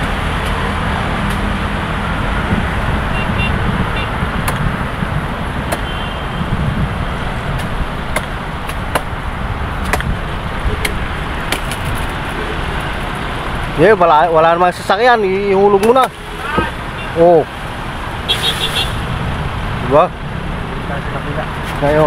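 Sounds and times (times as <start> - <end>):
road traffic: 0.0 - 22.0
machete hacking palm stalk: 7.5 - 9.2, 9.8 - 10.2, 10.8 - 11.9.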